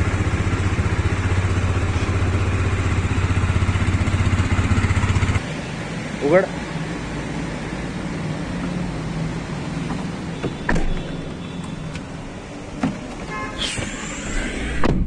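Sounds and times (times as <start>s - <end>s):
vehicle engine hum: 0.0s - 15.0s
sharp knocks and clunks: 9.8s - 12.1s, 12.8s - 13.9s
short squeak: 13.3s - 14.8s.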